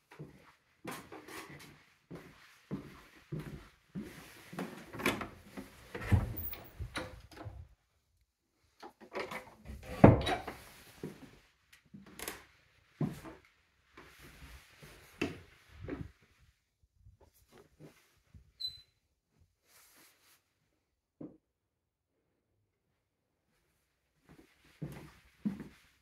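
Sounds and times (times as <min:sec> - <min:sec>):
footsteps on wooden floors: 0:00.1 - 0:06.6, 0:13.0 - 0:13.4, 0:24.2 - 0:25.8.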